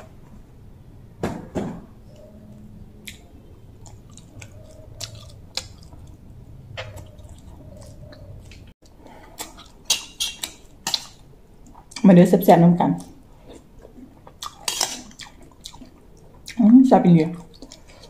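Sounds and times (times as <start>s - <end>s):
person chewing food: 3.0s - 12.0s, 13.0s - 16.6s, 17.4s - 18.0s.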